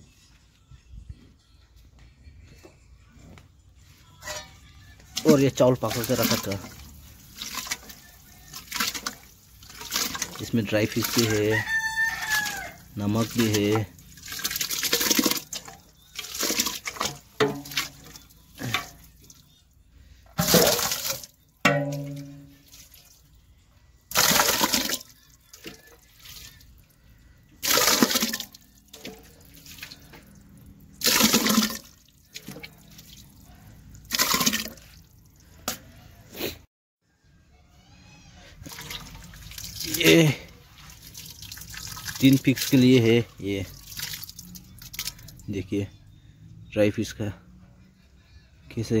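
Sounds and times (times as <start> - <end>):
hand stirring wet mash in pot: 4.0 - 19.4, 27.6 - 36.0.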